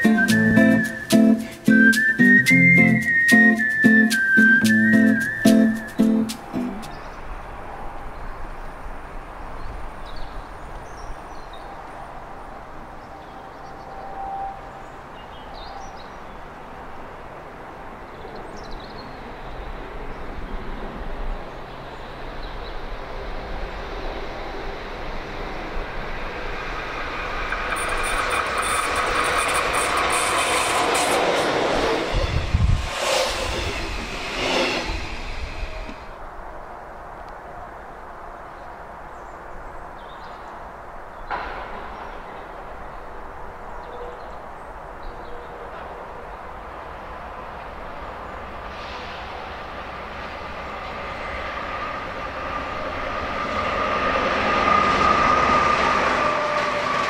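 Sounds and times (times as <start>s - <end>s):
train rushing past: 0.0s - 7.9s, 19.2s - 36.6s, 46.4s - 57.0s
wheels clattering over rail joints: 26.0s - 32.3s.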